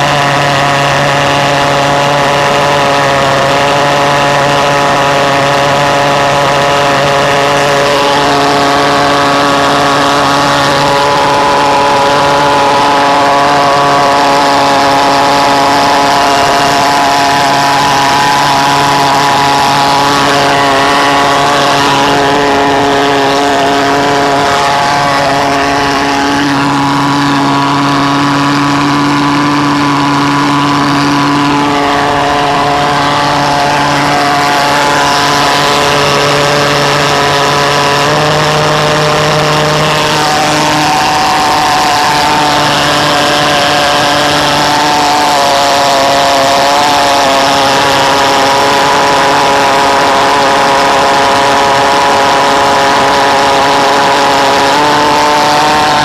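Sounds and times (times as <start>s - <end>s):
pulse jet engine buzzing: 0.0s - 56.0s.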